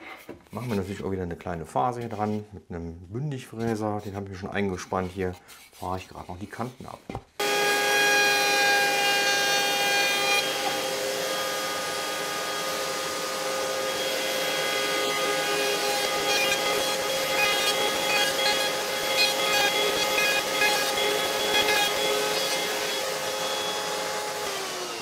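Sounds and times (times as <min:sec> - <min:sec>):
router whining: 0:07.4 - 0:25.0
wood cutting noise: 0:07.4 - 0:25.0.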